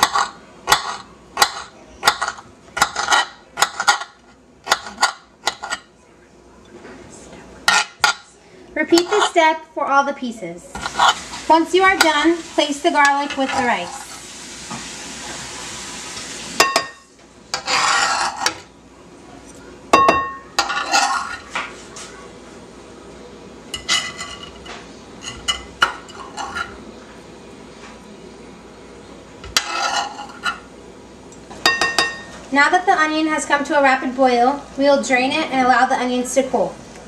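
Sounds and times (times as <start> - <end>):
knife scraping on cutting board: 0.0 - 5.8, 7.7 - 8.1, 8.9 - 9.5, 10.8 - 11.4, 17.5 - 18.6, 20.6 - 21.6, 29.6 - 30.6.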